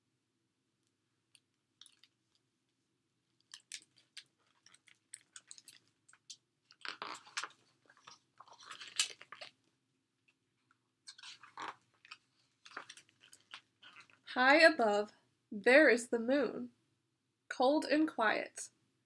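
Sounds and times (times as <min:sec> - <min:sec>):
book pages turning: 0:03.4 - 0:09.6, 0:11.1 - 0:14.2
paper rustling and crinkling: 0:03.4 - 0:09.6, 0:11.1 - 0:14.3.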